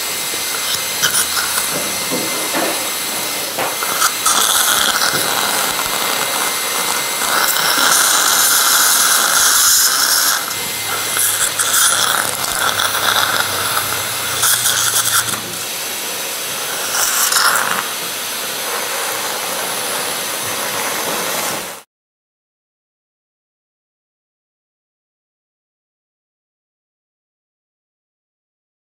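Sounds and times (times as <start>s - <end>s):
drill motor hum: 0.0s - 21.8s
surgical suction hissing: 0.0s - 21.8s.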